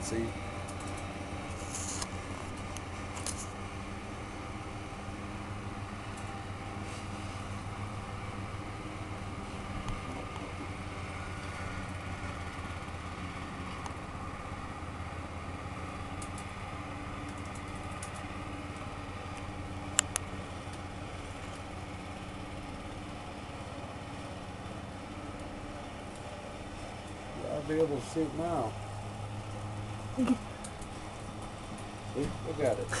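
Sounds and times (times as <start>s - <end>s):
riding mower engine running: 0.0s - 33.0s.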